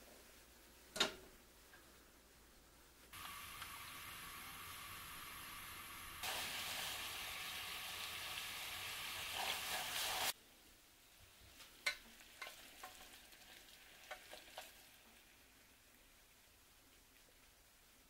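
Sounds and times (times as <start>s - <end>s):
syrup boiling and bubbling: 3.1s - 10.4s, 11.8s - 18.0s
spatula stirring in saucepan: 9.1s - 10.4s, 11.5s - 15.3s.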